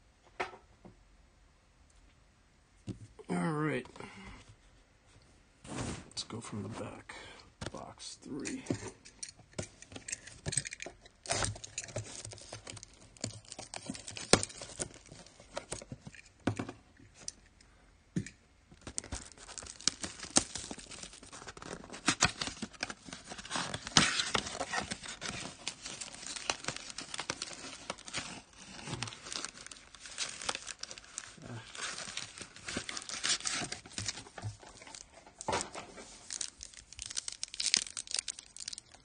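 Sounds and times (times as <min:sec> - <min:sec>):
wrappers tearing and crinkling: 0:10.6 - 0:16.2, 0:18.8 - 0:39.0.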